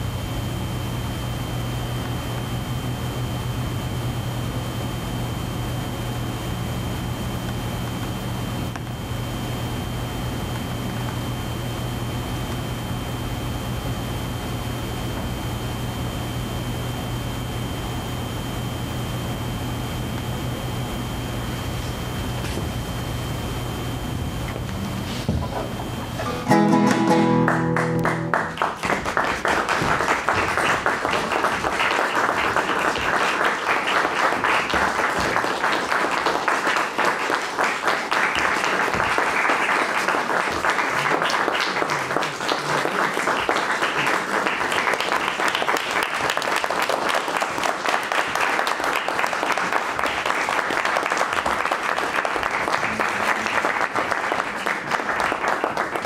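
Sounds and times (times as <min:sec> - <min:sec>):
acoustic guitar chord strummed: 0:26.1 - 0:28.8
audience applause: 0:27.2 - 0:56.0.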